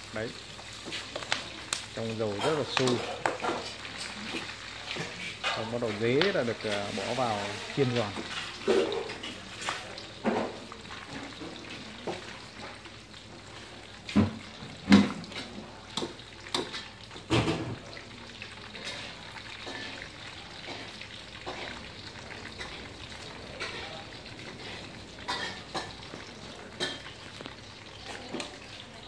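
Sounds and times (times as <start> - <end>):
leaves sizzling in hot oil: 0.0 - 29.0.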